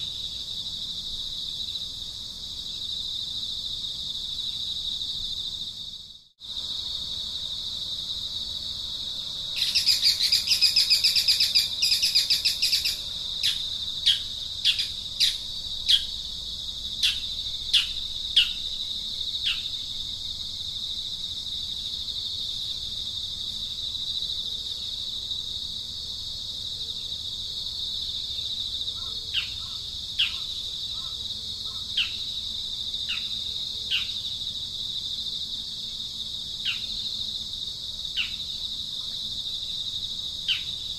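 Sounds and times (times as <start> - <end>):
insect drone: 0.0 - 40.9
bird calling: 9.6 - 16.1, 29.0 - 32.2.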